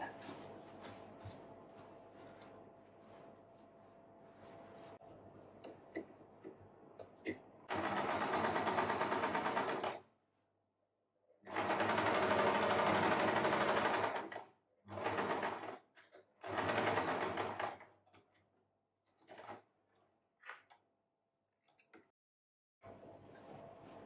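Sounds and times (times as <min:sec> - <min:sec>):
fabric handling: 0:00.0 - 0:05.0
electric sewing machine stitching: 0:07.7 - 0:10.0, 0:11.5 - 0:15.8, 0:16.4 - 0:17.8.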